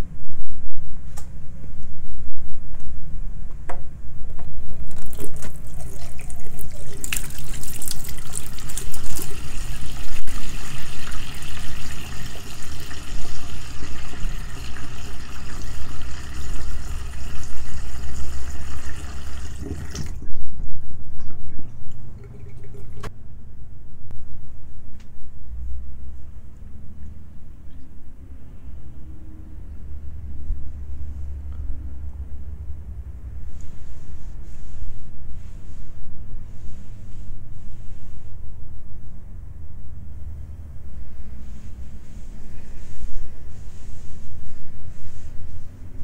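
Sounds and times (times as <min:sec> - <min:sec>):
tap water splashing into sink: 0:04.9 - 0:20.2
steady low rumble: 0:23.2 - 0:46.0.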